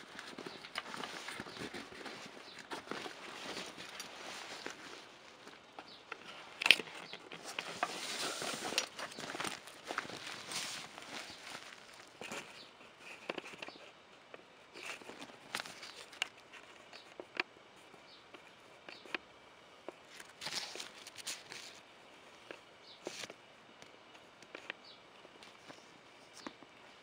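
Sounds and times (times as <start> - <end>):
camera bag rustling: 0.0 - 12.6.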